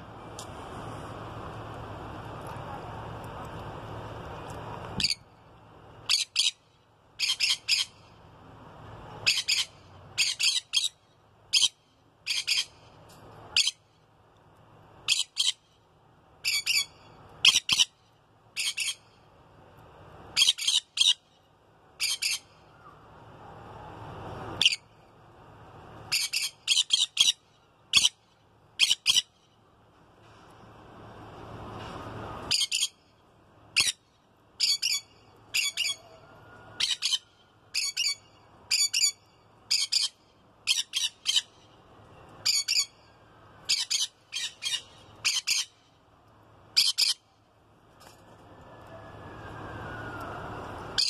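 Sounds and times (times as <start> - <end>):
parrots squawking: 9.2 - 11.0, 34.6 - 36.0, 36.8 - 41.6, 43.7 - 45.8, 46.8 - 47.2.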